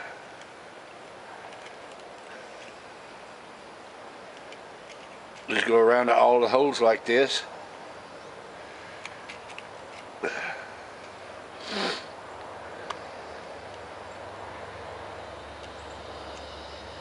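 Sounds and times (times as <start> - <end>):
outdoor background noise: 0.0 - 17.0
breathy sniffs: 11.6 - 12.1
faint ticks: 15.6 - 16.6.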